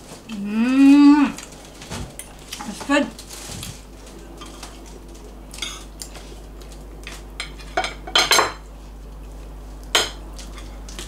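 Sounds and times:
cutlery clinking on ceramic plates: 7.4 - 8.6.

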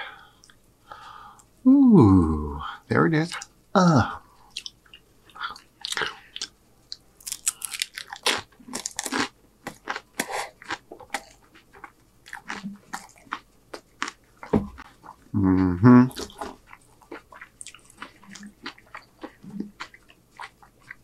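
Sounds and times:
person crunching chips: 5.5 - 6.5, 7.2 - 14.2.

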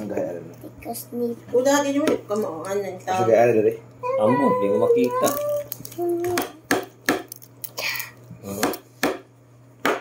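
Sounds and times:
egg tapped on hard tabletop: 6.3 - 7.3, 8.6 - 10.0.

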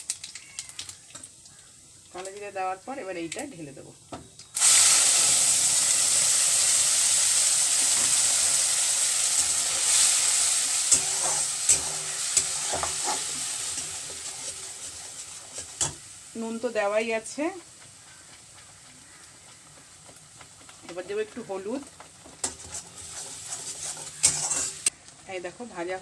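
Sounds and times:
paste sizzling in hot oil: 4.5 - 24.9
steel spatula scraping pan: 9.4 - 16.0, 22.3 - 24.9.

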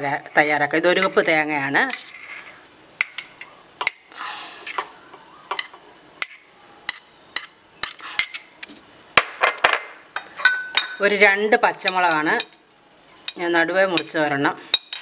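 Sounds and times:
metal spoon clinking: 5.5 - 8.6, 10.2 - 11.1, 14.0 - 15.0.

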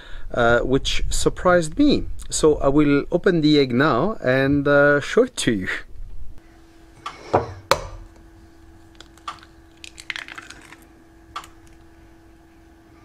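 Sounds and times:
faint steady hum: 0.0 - 13.0
eggshell cracking: 8.9 - 11.9.

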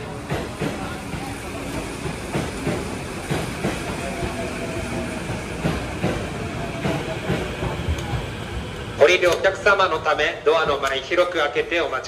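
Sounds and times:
train running rumble: 0.0 - 11.9.

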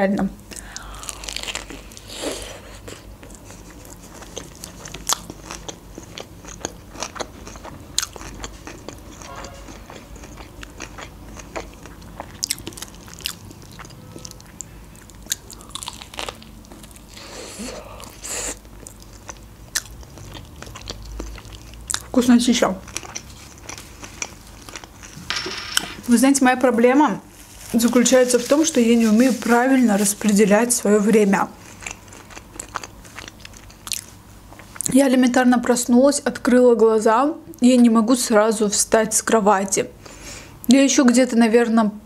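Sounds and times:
chewing with sharp crunches: 0.6 - 25.3, 31.6 - 34.9.

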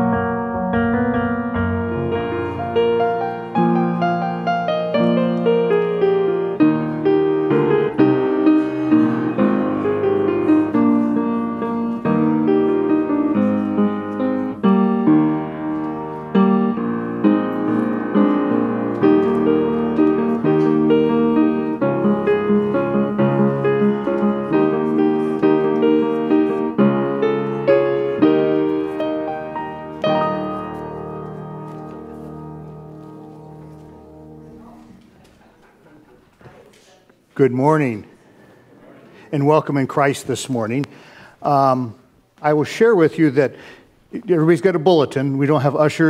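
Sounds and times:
upright piano playing: 0.0 - 35.2.

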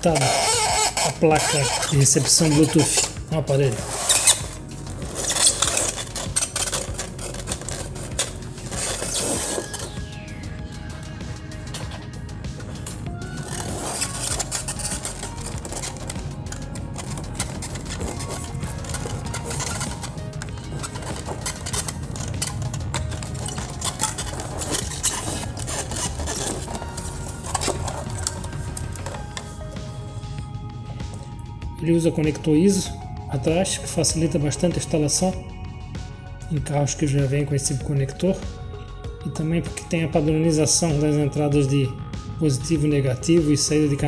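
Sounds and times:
clicks scrapes and rubs: 0.2 - 10.0, 11.7 - 29.8
hands handling metal chassis: 0.2 - 10.0, 11.6 - 30.2
steady low background: 2.1 - 39.3.

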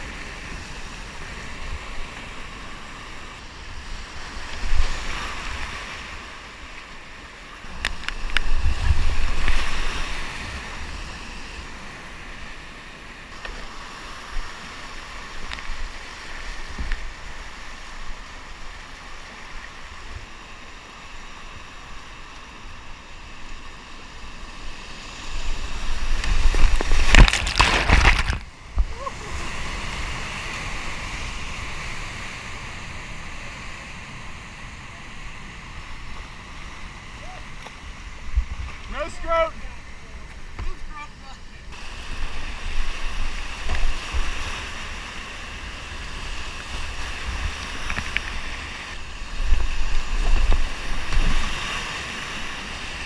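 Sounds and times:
water splashing close by: 25.3 - 30.8.

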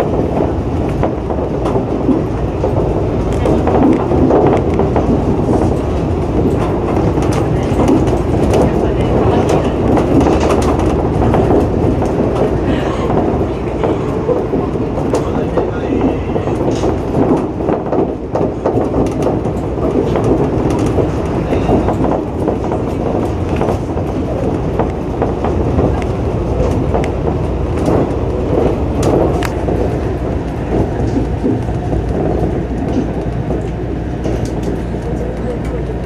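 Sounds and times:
monorail tyres running on track: 0.0 - 36.0.

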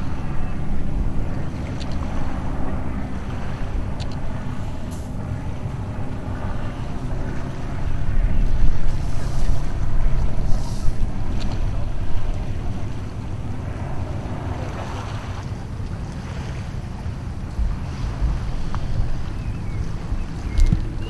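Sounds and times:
waves washing on shore: 0.0 - 21.0
wind rumbling on microphone: 0.0 - 21.0.

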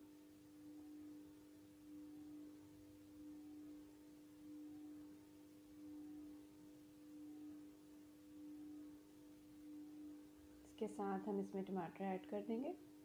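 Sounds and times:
faint pure tone: 0.0 - 13.0.

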